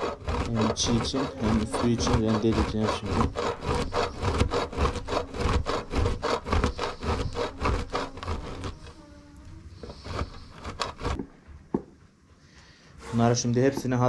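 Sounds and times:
cheese grating on hand grater: 0:00.0 - 0:09.1, 0:09.7 - 0:11.2.

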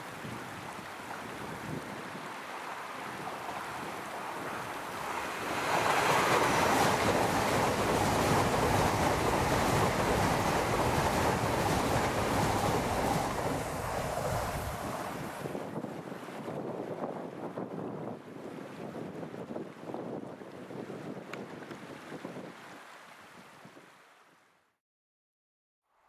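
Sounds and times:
train passing on rails: 0:02.7 - 0:15.5
train diesel engine: 0:05.0 - 0:15.1.

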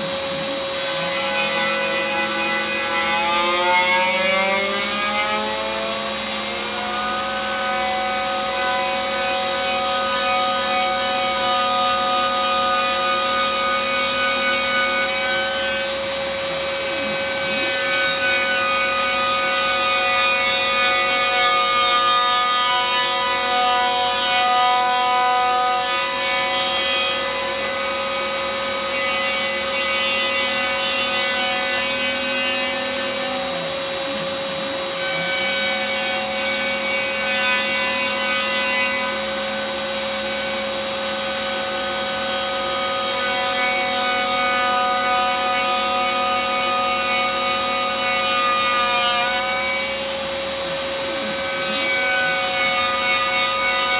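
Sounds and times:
vacuum running: 0:00.0 - 0:09.2, 0:32.7 - 0:35.7
router spindle whine: 0:00.0 - 0:53.9.

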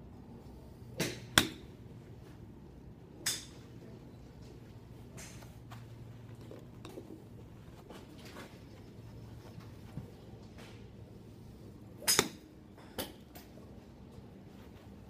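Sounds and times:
golf club striking ball: 0:01.0 - 0:01.7, 0:12.0 - 0:13.2.

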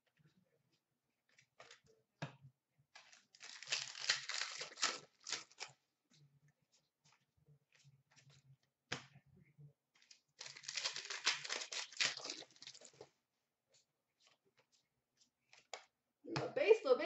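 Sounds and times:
wrapper tearing and crinkling: 0:03.3 - 0:05.7, 0:10.0 - 0:13.0.

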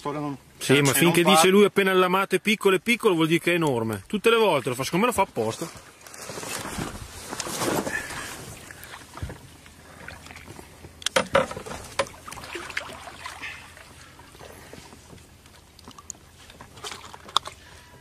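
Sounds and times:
water splashing and sloshing: 0:05.9 - 0:18.0.

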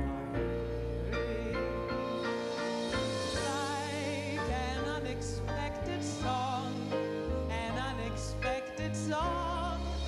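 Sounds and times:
grand piano: 0:00.0 - 0:10.0
woman singing: 0:03.4 - 0:10.0.

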